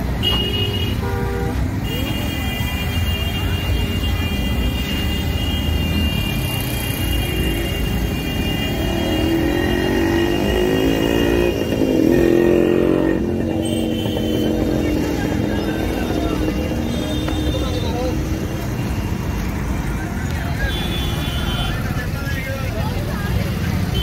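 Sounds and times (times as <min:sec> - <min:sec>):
engine revving: 0:08.8 - 0:13.6.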